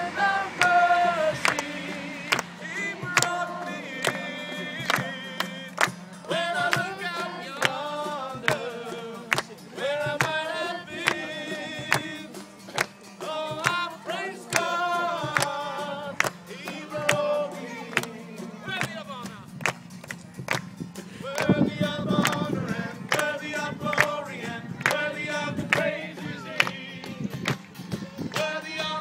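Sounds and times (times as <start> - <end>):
group singing gospel chorus: 0.0 - 12.5, 13.2 - 18.7, 21.1 - 27.4, 28.2 - 29.0
acoustic guitar: 0.0 - 29.0
hands clapping on the beat: 0.5 - 29.0.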